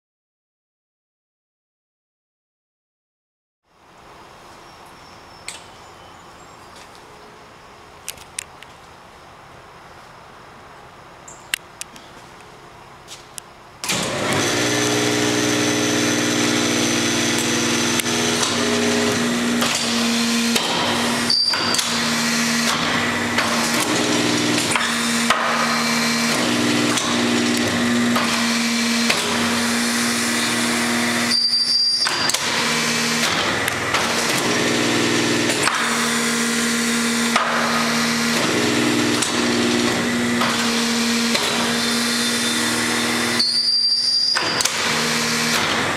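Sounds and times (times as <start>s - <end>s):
hydraulic power unit humming: 13.6s - 45.9s.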